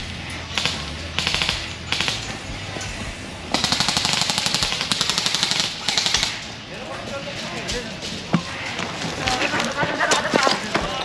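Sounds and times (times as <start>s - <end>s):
airsoft guns firing bursts: 0.0s - 2.4s, 3.5s - 6.5s.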